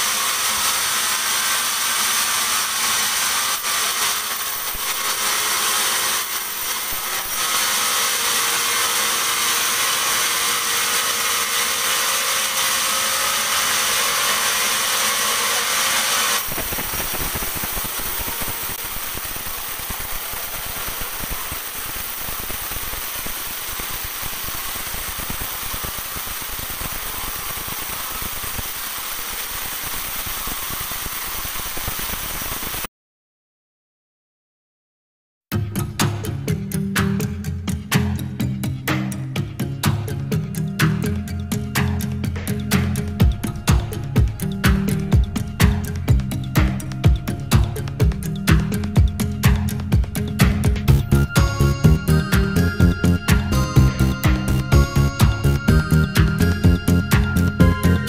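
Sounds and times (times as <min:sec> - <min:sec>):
band saw cutting wood: 0:00.0 - 0:31.8.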